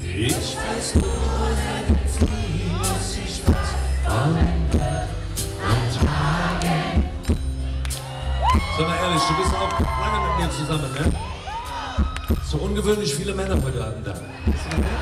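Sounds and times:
man singing: 0:00.0 - 0:05.1
backing vocalists: 0:00.0 - 0:07.5, 0:14.5 - 0:15.0
live pop band playing: 0:00.0 - 0:15.0.

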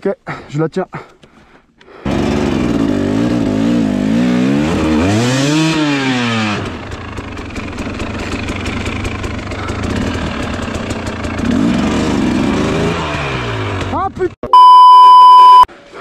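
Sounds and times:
dirt bike engine revving: 0:02.1 - 0:14.1.

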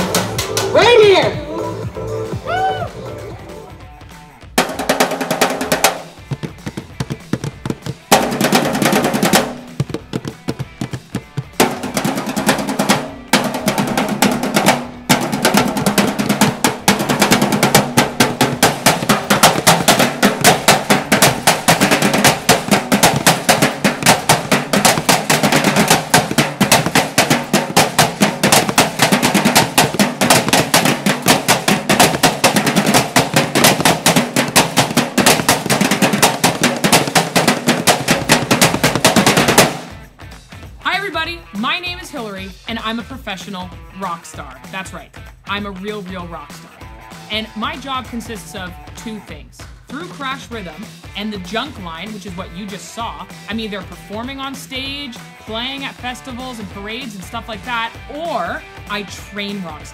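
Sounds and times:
drumsticks on garbage cans: 0:00.0 - 0:01.2, 0:04.6 - 0:40.0.

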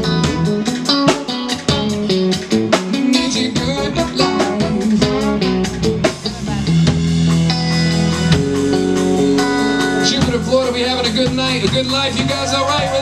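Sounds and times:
drum kit steady beat: 0:00.0 - 0:13.0
electric guitar: 0:00.0 - 0:13.0
trombone long notes: 0:03.6 - 0:05.9.

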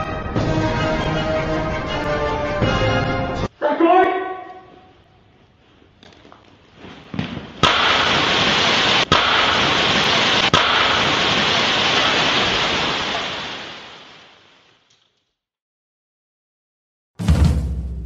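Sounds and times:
firework fountain hissing: 0:07.6 - 0:14.8.

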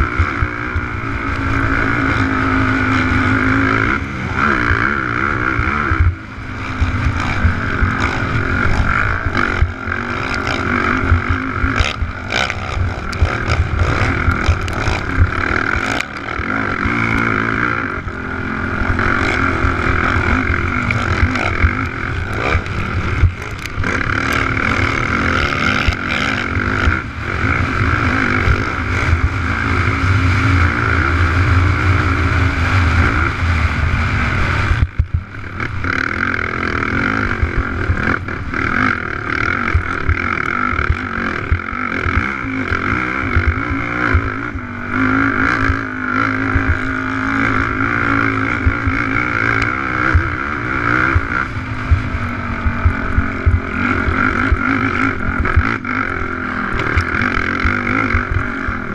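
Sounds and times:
quad engine running hard: 0:00.0 - 0:58.9.

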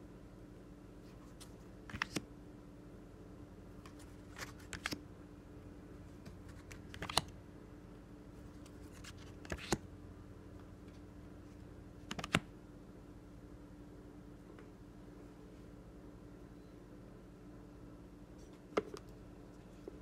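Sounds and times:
faint steady hum: 0:00.0 - 0:20.0
cards clicking and sliding: 0:01.2 - 0:02.3, 0:03.8 - 0:05.0, 0:06.2 - 0:07.3, 0:08.5 - 0:09.8, 0:12.0 - 0:12.5.

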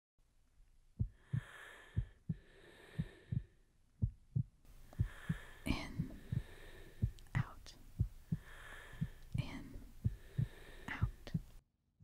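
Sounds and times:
heartbeat thumps: 0:01.0 - 0:11.6
soft hiss: 0:04.7 - 0:11.6.

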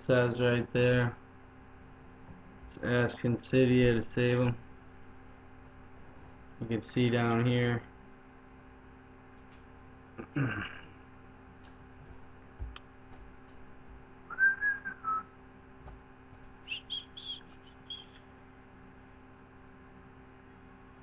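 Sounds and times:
person whistling: 0:14.3 - 0:15.3, 0:16.7 - 0:18.2
short high whistled chirps: 0:14.3 - 0:15.3, 0:16.6 - 0:18.3.

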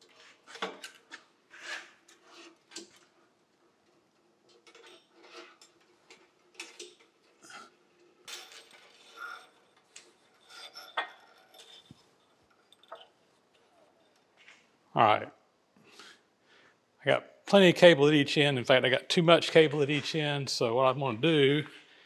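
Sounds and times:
wire rope scraping: 0:00.0 - 0:03.2, 0:04.4 - 0:06.5, 0:08.8 - 0:14.6
light metallic clinks: 0:08.2 - 0:14.3.

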